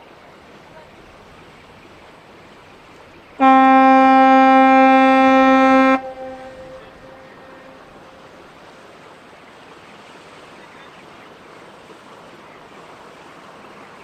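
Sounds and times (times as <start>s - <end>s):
horn echo: 3.4s - 8.2s
ship's horn blast: 3.4s - 8.4s.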